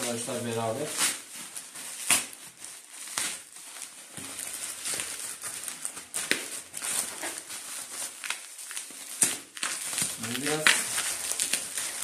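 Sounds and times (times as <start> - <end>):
plastic bag crinkling and rustling: 0.0 - 12.0.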